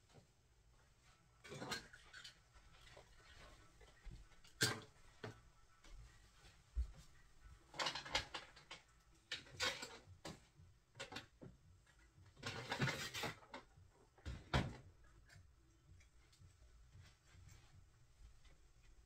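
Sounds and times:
objects being handled: 0:01.4 - 0:15.4.

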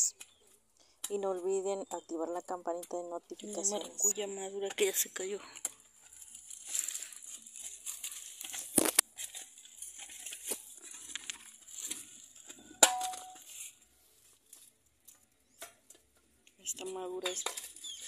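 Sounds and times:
leaves and twigs rustling: 0:00.0 - 0:16.0, 0:16.6 - 0:18.0
twigs snapping: 0:05.6 - 0:13.2.

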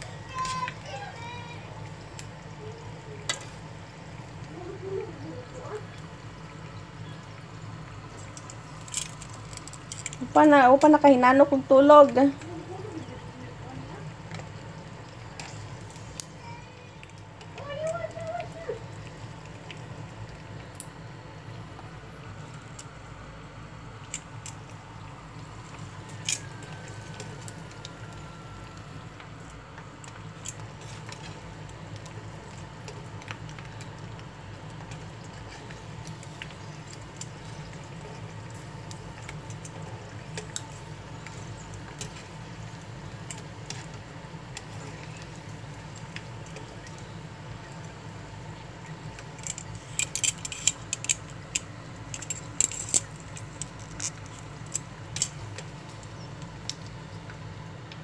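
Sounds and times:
fish frying in oil: 0:00.0 - 0:58.0
oil popping and crackling: 0:00.0 - 0:58.0.

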